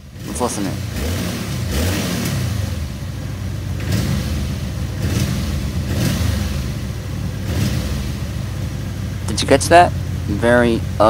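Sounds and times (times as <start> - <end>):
motorcycle engine idling roughly: 2.8 - 9.3.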